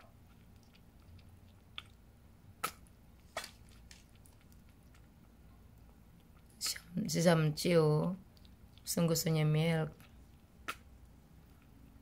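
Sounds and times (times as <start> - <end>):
kitten lapping milk: 0.0 - 6.6.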